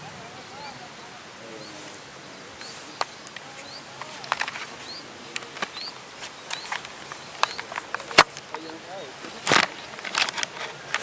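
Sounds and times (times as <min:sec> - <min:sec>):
outdoor background noise: 0:00.0 - 0:11.0
bird rising chirp: 0:00.4 - 0:08.1.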